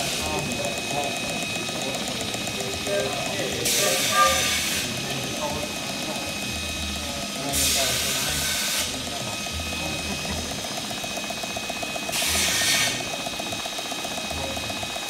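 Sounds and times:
steam engine ticking: 0.0 - 6.8, 7.5 - 15.0
steam hissing: 2.2 - 6.4, 7.3 - 14.2.

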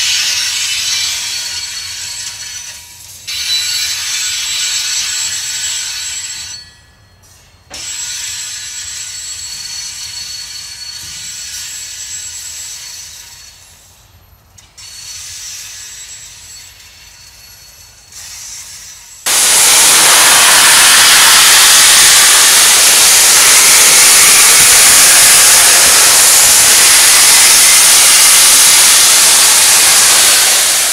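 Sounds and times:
steam hissing from locomotive: 0.0 - 6.6, 7.2 - 14.1, 14.7 - 30.9
steady high tones: 19.3 - 30.9.

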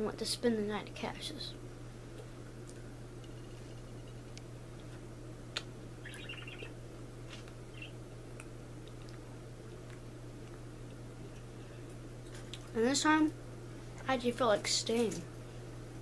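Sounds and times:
steady low hum: 0.0 - 16.0
faint high chirps: 6.0 - 6.8, 7.7 - 8.0.

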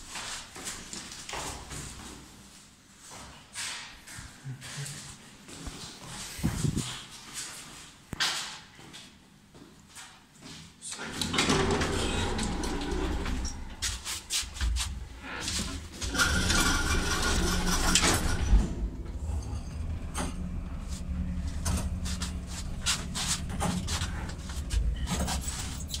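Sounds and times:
lift car clicks and rattles: 11.0 - 13.8, 15.4 - 26.0
lift car humming: 11.1 - 14.1, 15.0 - 26.0.

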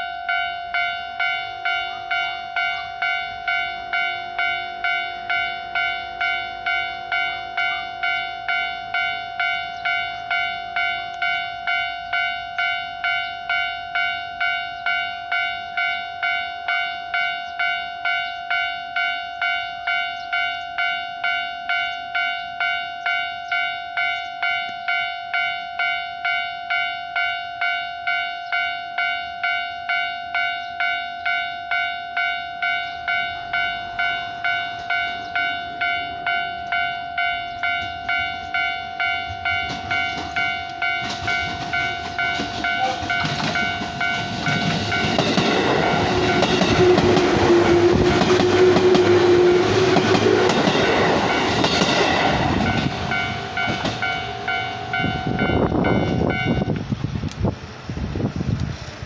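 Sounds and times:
level-crossing alarm ringing: 0.0 - 56.8
electric train passing: 0.0 - 59.0
train wheels clacking over rail joints: 39.3 - 55.5.

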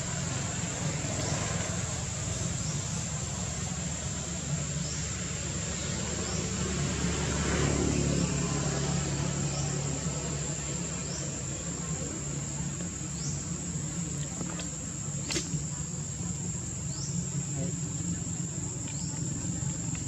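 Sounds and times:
road traffic rumble: 0.0 - 20.0
vehicle passing: 4.8 - 14.0.

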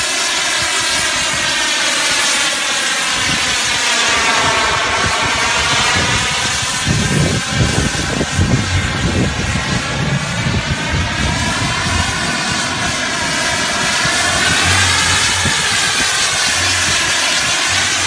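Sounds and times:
jet engine roaring overhead: 0.0 - 18.0
gusty low thumps: 3.9 - 18.0.

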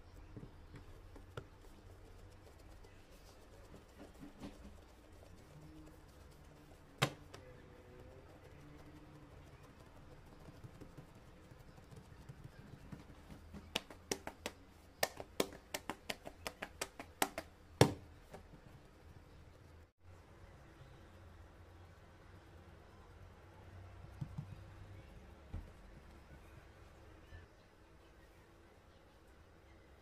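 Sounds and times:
fingertips tapping dough on board: 0.1 - 18.6.

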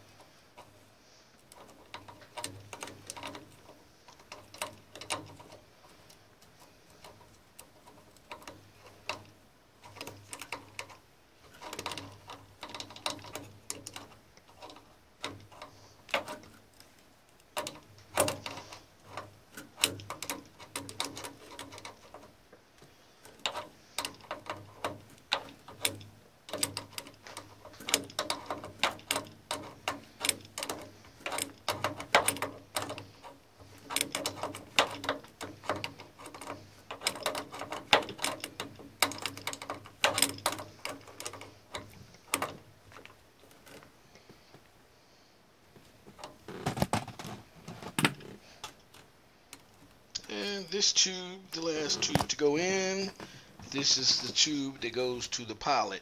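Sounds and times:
wrench clicking on metal fittings: 23.2 - 43.8.

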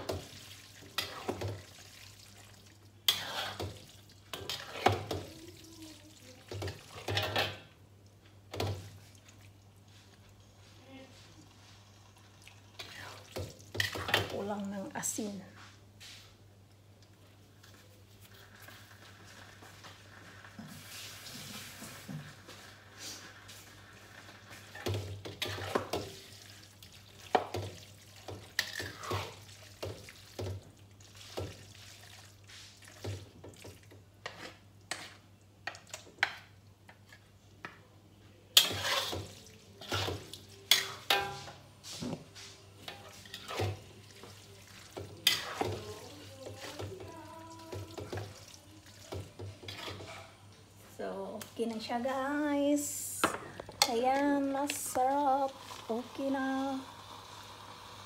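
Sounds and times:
spatula scraping and clacking wok: 0.0 - 1.7, 3.1 - 5.3, 6.5 - 7.6, 18.4 - 26.3, 27.2 - 30.6, 31.2 - 36.4, 38.6 - 50.4.

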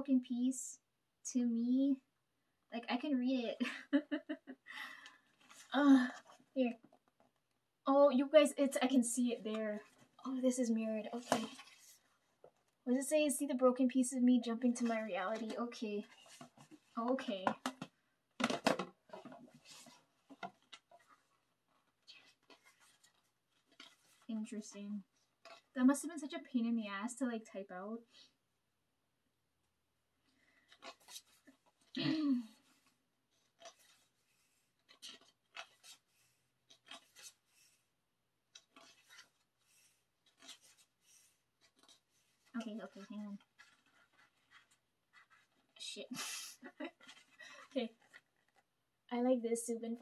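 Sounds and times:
pages turning and rustling: 5.3 - 7.2, 10.9 - 12.8, 14.5 - 24.5, 25.2 - 25.7, 30.4 - 37.9, 38.5 - 45.8, 46.4 - 48.7.

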